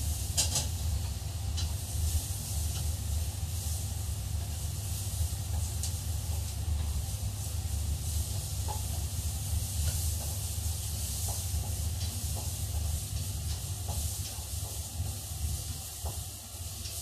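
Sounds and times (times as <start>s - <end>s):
chicken sizzling in a frying pan: 0.0s - 17.0s
utensil clicking against pan: 0.3s - 1.8s, 8.3s - 15.0s.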